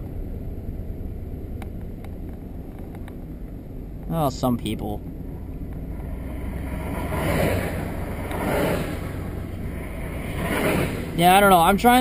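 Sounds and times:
passing traffic: 0.0s - 12.0s
truck engine hum: 0.0s - 12.0s
tyre road noise: 0.0s - 12.0s
wind rushing: 5.9s - 12.0s.

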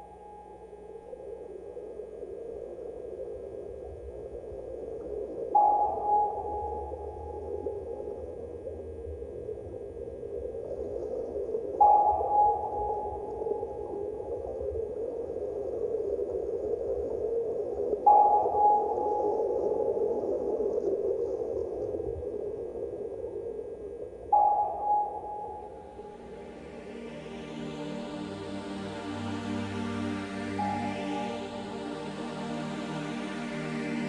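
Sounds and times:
hissing ambient drone: 0.0s - 34.0s
sustained high tone: 24.4s - 34.0s.

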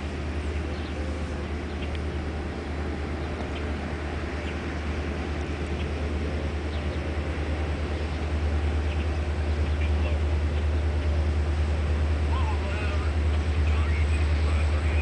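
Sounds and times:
diesel locomotives rumbling: 0.0s - 15.0s.

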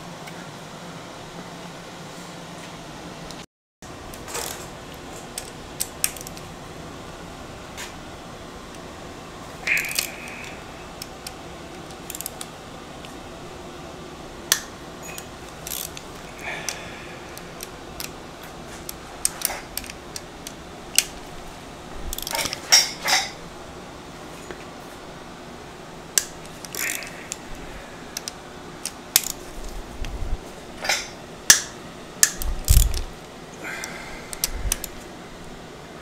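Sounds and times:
metal tools and bolts clinking: 22.1s - 23.4s, 30.8s - 33.1s.

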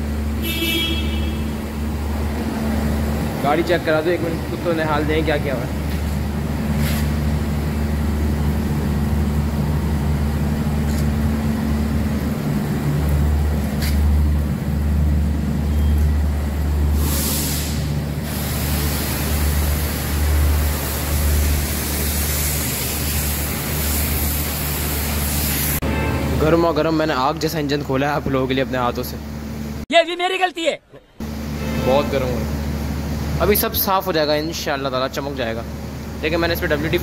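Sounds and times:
low machine hum: 0.0s - 17.2s
water spray hissing: 16.9s - 25.8s.

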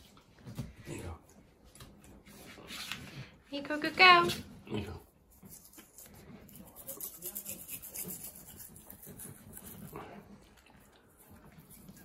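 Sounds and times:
toothbrush scrubbing dog's teeth: 4.5s - 12.0s.

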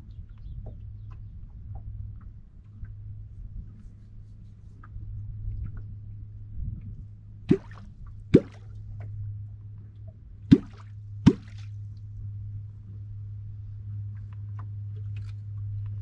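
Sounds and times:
steady low hum: 0.0s - 16.0s
wooden call plopping in water: 7.5s - 7.8s, 8.4s - 8.7s, 10.5s - 11.6s.

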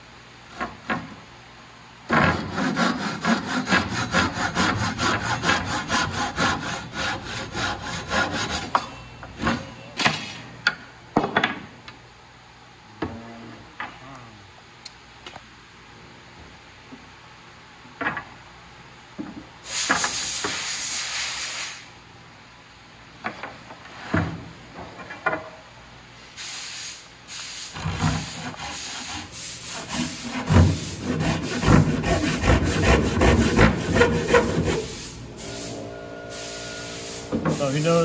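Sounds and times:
hand saw cutting wood: 2.1s - 8.8s, 27.8s - 35.0s.

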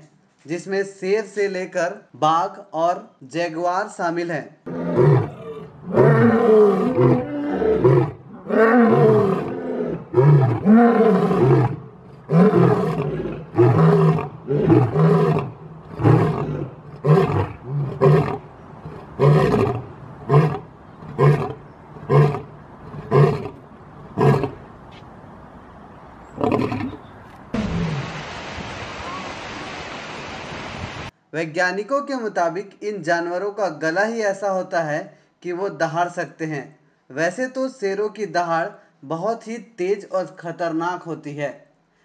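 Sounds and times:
lion grunting roars: 4.7s - 23.6s
lion roaring: 4.7s - 23.6s, 24.2s - 24.6s, 26.4s - 27.0s.

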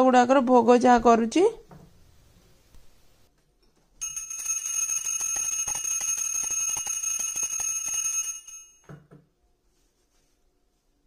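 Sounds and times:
small brass hand bell ringing: 4.0s - 8.9s.

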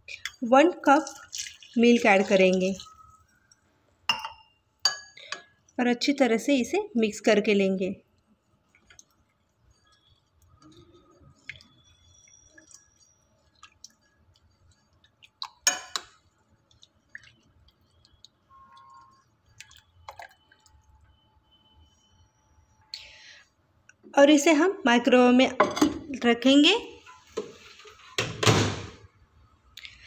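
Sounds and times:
spoon clinking on glass: 4.1s - 5.5s, 15.6s - 16.2s.

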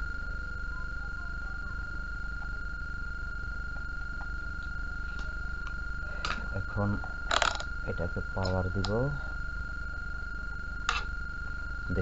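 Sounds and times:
low hum: 0.0s - 12.0s
steady high-pitched tone: 0.0s - 12.0s.

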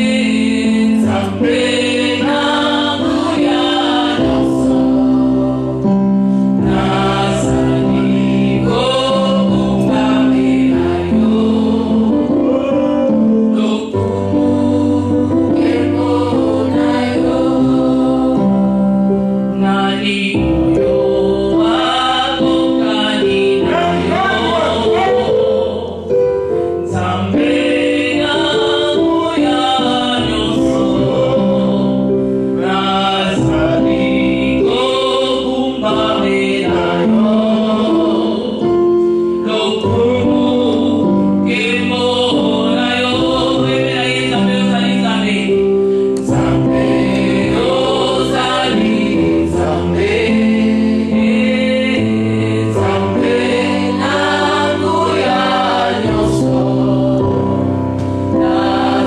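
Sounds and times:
choir singing in harmony: 0.0s - 59.0s
held low backing notes: 20.4s - 59.0s.

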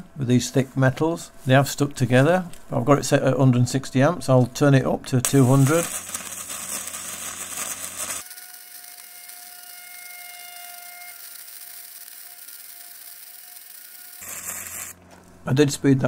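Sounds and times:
welding arc hissing: 5.2s - 15.0s.

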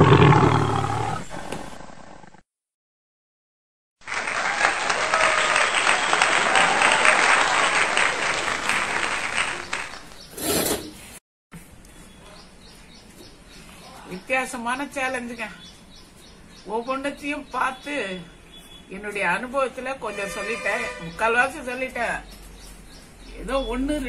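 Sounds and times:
applause: 4.0s - 10.2s
faint background sounds: 11.6s - 24.0s.

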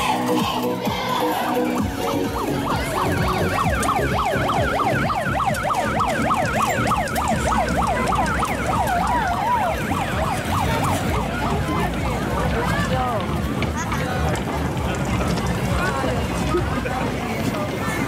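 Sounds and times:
siren-like whoops: 1.4s - 11.6s.

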